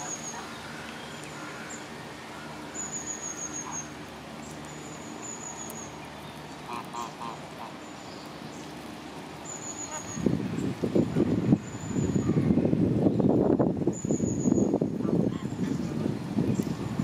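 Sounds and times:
waterbird nasal calls: 0.0s - 4.1s, 6.6s - 8.3s, 9.5s - 10.3s.

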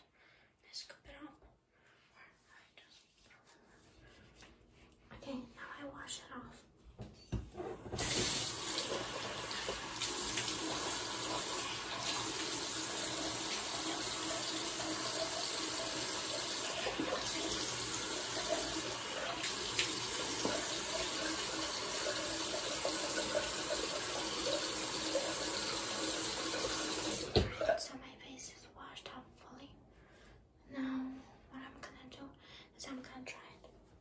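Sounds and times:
faucet water pouring into basin: 8.0s - 27.5s.

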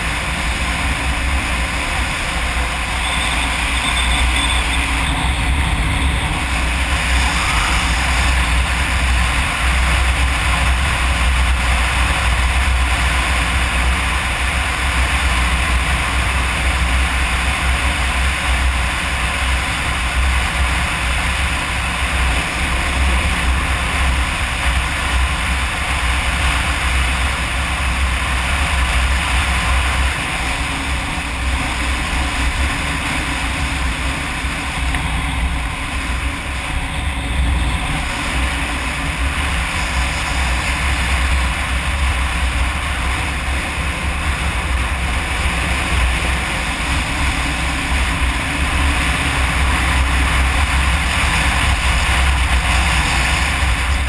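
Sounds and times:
motorcycle engine and tyres: 0.0s - 54.0s
wind noise on microphone: 0.0s - 54.0s.

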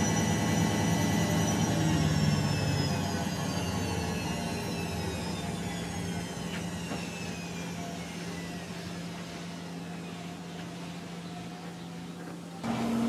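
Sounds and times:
high whine falling in pitch: 0.0s - 10.3s
heavy vehicle engine humming: 0.0s - 13.0s.

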